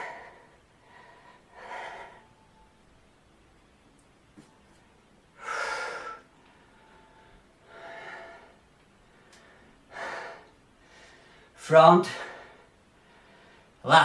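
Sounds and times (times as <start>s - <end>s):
man breathing hard: 0.0s - 2.4s, 5.4s - 13.8s.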